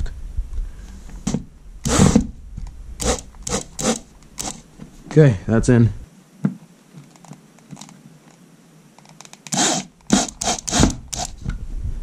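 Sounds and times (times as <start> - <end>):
impact drill driving a screw: 1.8 - 2.3, 3.0 - 4.6, 9.5 - 11.4.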